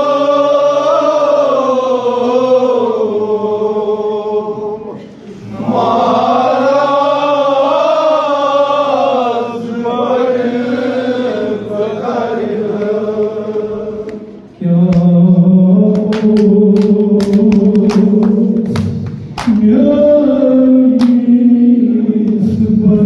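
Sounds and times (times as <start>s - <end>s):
men chanting a lament: 0.0s - 18.8s, 19.4s - 23.0s
hands slapping chests: 15.9s - 19.6s.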